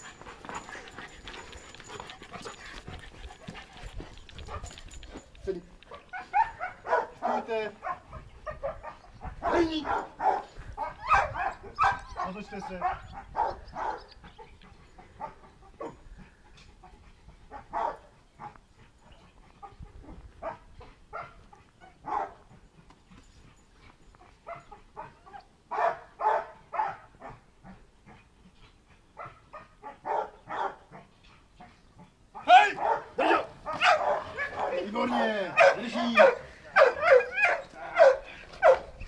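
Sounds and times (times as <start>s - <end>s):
large dog barking: 5.9s - 14.2s, 17.5s - 18.6s, 20.4s - 22.5s, 24.4s - 27.8s, 29.2s - 31.1s, 32.3s - 39.0s.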